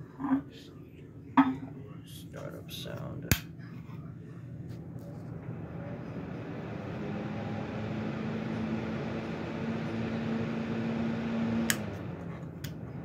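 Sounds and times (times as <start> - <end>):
table fan motor hum: 4.8 - 13.0
fan switch click: 11.6 - 11.9.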